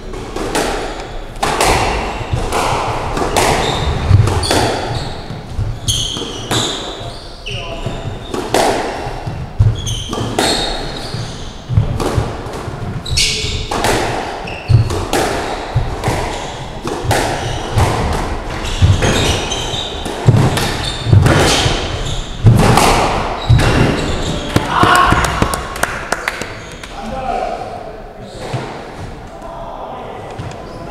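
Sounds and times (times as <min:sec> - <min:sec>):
shoes squeaking on wooden floor: 0:02.1 - 0:13.8, 0:14.4 - 0:25.6, 0:26.4 - 0:26.9.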